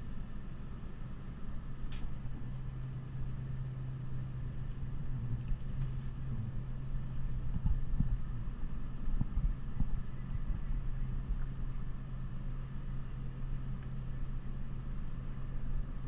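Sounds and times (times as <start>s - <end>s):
refrigeration unit humming: 0.0s - 16.0s.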